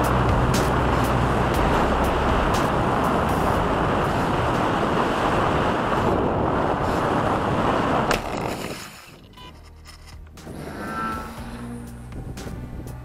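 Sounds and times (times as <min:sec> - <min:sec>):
wind roar on microphone: 0:00.0 - 0:09.4, 0:10.3 - 0:13.0.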